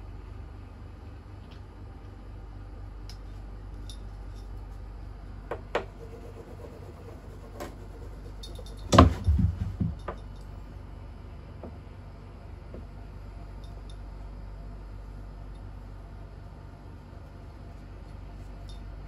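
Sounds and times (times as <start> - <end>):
cat landing with heavy thumps: 8.9 - 10.2.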